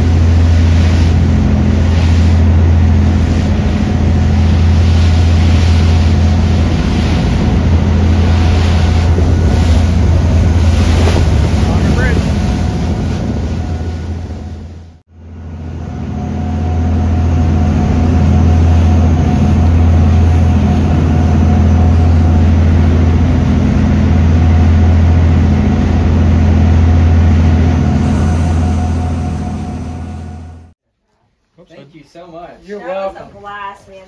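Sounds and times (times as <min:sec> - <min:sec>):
wind over microphone: 0:00.0 - 0:15.0
boat engines droning: 0:00.0 - 0:30.8
rush of boat wake: 0:00.0 - 0:30.8.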